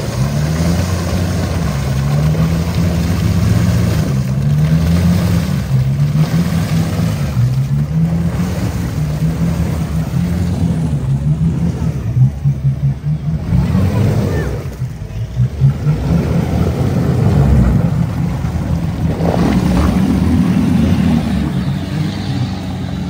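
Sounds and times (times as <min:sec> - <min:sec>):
off-road vehicle engine rumbling: 0:00.0 - 0:23.0.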